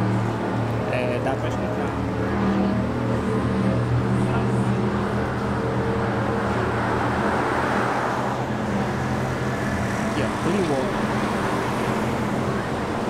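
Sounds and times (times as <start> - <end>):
traffic engine drone: 0.0 - 13.0.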